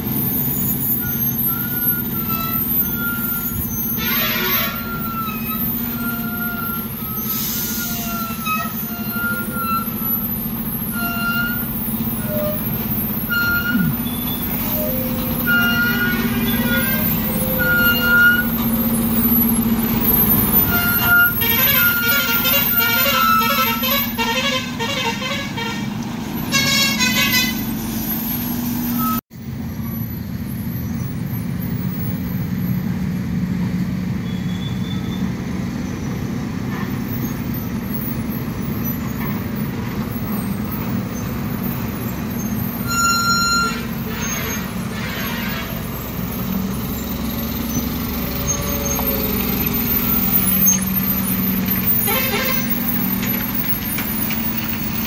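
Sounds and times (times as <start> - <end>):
lorry diesel engine under load: 0.0 - 55.0
lorry horn toots: 4.0 - 5.4, 20.7 - 27.7, 42.9 - 46.0, 52.0 - 52.9.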